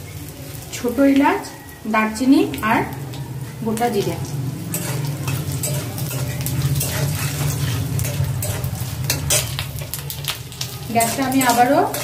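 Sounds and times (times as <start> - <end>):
spices sizzling in hot oil: 0.0 - 12.0
steady low hum: 2.5 - 10.2
metal spatula scraping pan: 2.8 - 12.0.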